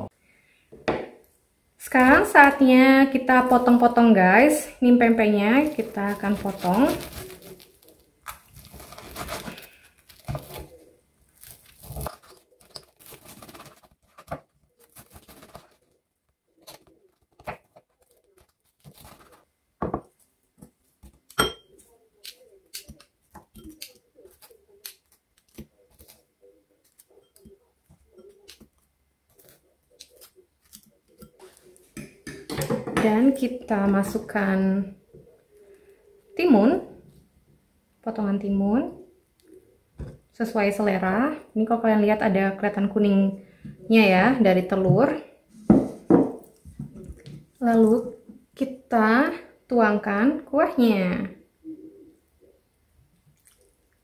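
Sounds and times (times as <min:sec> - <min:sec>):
cutlery knocking on board and bowl: 0:21.3 - 0:21.7.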